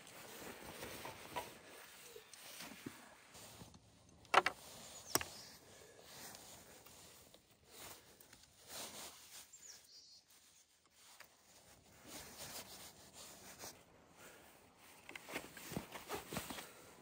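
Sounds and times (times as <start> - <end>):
straps pulled through buckles: 0.0 - 9.3, 14.8 - 16.8
jacket fabric rubbing: 10.4 - 14.6.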